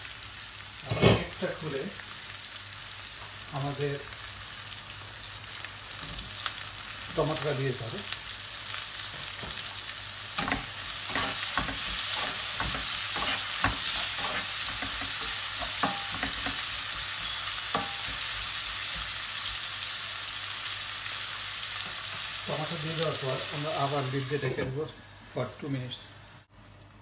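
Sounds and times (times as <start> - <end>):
vegetables sizzling in hot oil: 0.0 - 27.0
spatula knocking and scraping pan: 10.4 - 19.2.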